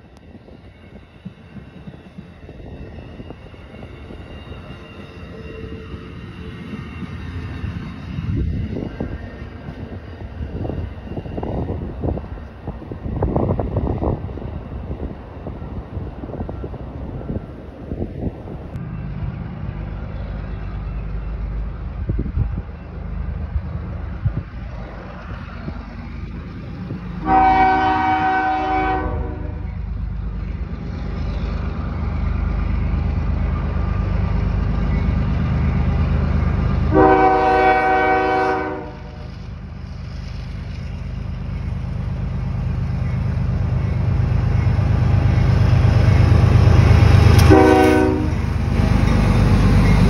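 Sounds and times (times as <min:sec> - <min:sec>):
locomotive engine and wheels rumble: 0:00.0 - 0:50.0
locomotive air horn blasts: 0:27.2 - 0:29.7, 0:36.9 - 0:39.3, 0:47.4 - 0:48.4.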